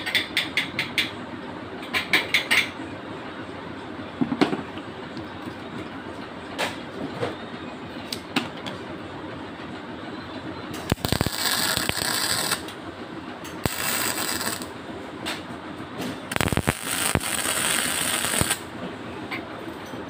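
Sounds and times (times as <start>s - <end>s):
arc welding hiss and crackle: 10.9s - 12.7s, 13.6s - 14.7s, 16.3s - 18.7s
arc striking clicks: 10.9s - 12.8s, 13.6s - 14.7s, 16.3s - 18.6s.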